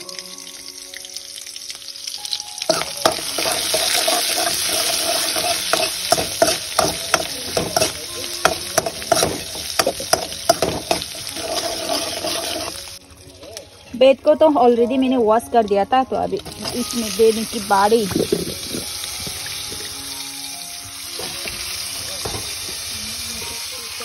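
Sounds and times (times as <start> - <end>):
oil sizzling in a pan: 0.0 - 13.8, 16.4 - 24.0
soft background music: 0.0 - 24.0
spatula scraping a pan: 2.7 - 13.0.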